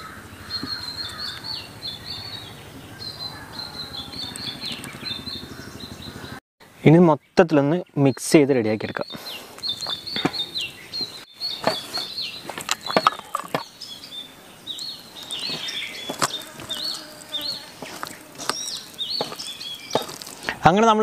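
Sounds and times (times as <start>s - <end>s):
bird chirping: 0.0s - 21.0s
hand squelching wet paste: 15.1s - 20.6s.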